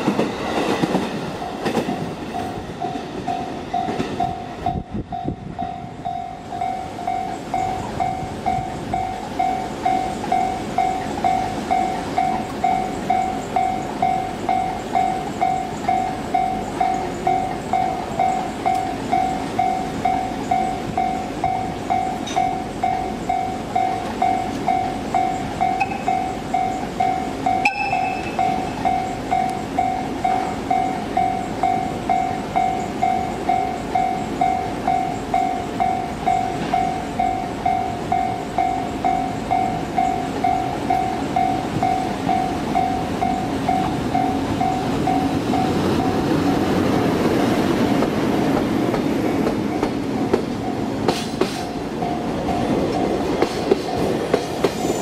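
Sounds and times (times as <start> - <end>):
freight train rumbling: 0.0 - 55.0
level crossing bell ringing: 3.3 - 46.2.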